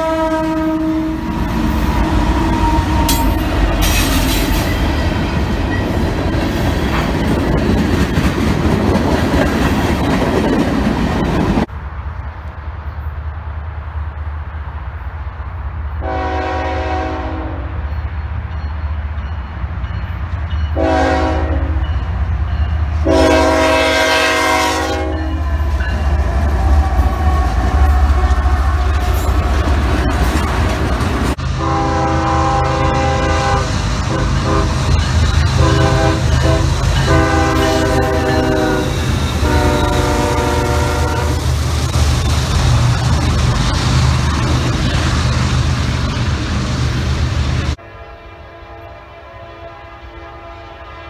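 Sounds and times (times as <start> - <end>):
locomotive air horn: 0.0 - 1.4, 16.0 - 17.8, 20.8 - 21.9, 23.0 - 29.2, 31.5 - 34.9, 35.5 - 41.5, 47.8 - 51.0
diesel engines and railcars rumbling: 0.0 - 51.0.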